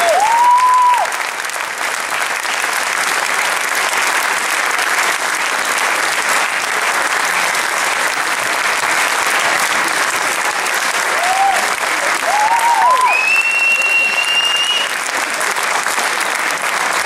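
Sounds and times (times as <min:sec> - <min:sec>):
large audience applauding: 0:00.0 - 0:17.0
high whistle from crowd: 0:12.5 - 0:14.9.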